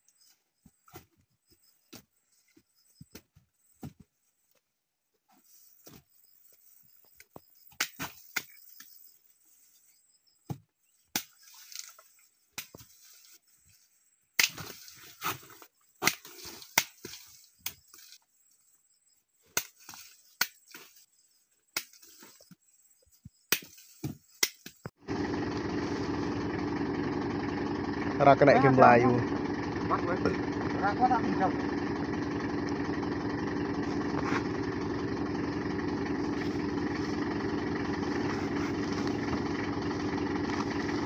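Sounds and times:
sickle blade chopping tubers: 0:10.5 - 0:11.4, 0:14.4 - 0:15.4, 0:16.0 - 0:17.9, 0:19.5 - 0:20.9, 0:21.7 - 0:22.2, 0:23.5 - 0:24.9.

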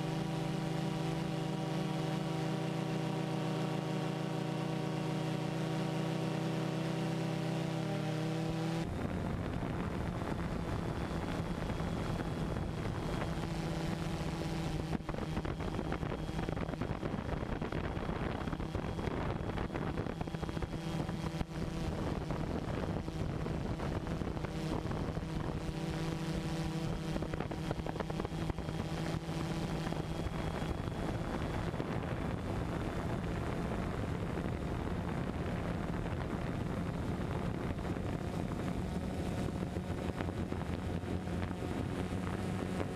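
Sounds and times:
drone propellers whirring: 0:00.0 - 0:42.9
wind noise on microphone: 0:08.8 - 0:42.9.

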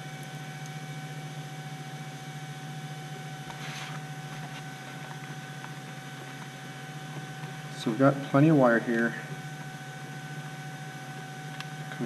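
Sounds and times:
electrical hum with high whine: 0:00.0 - 0:12.0
hands rustling foam: 0:03.5 - 0:04.7.

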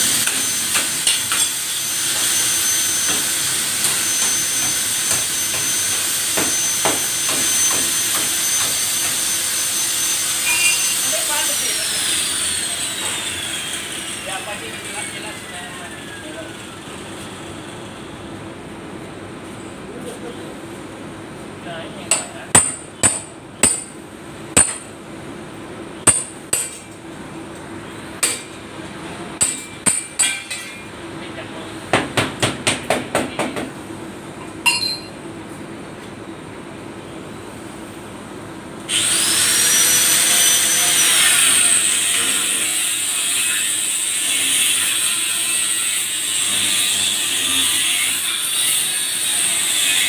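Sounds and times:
angle grinder cutting metal: 0:00.0 - 0:17.4, 0:38.9 - 0:50.0
hammer striking metal panel: 0:24.6 - 0:24.9.

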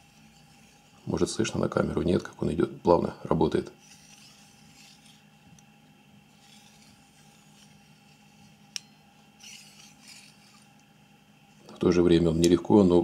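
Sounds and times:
caliper jaw sliding hiss: 0:06.3 - 0:10.9.

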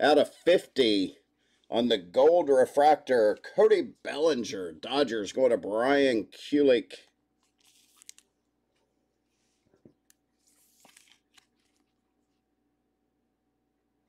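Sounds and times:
thin plastic crinkling: 0:07.4 - 0:08.9, 0:09.8 - 0:12.4.

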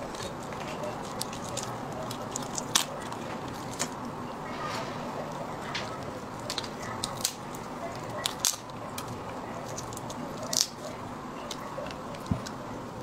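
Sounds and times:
shell cracking: 0:00.0 - 0:04.0, 0:05.7 - 0:12.7
wet squishing: 0:00.0 - 0:04.0.

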